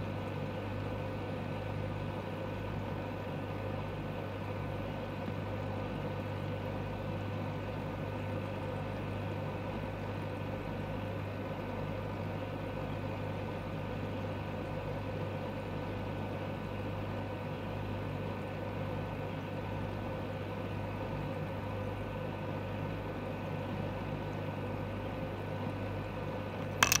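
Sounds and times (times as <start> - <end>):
aquarium pump humming: 21.4 - 27.0.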